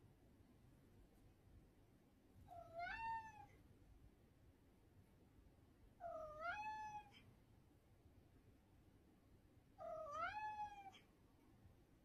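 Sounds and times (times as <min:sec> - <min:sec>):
cat meowing: 0:02.5 - 0:03.6, 0:06.0 - 0:07.2, 0:09.8 - 0:11.0.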